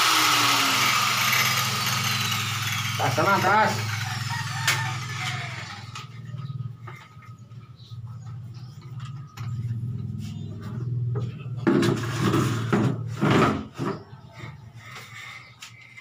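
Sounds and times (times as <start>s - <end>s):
plastic chair scraping on hard floor: 11.6s - 14.0s.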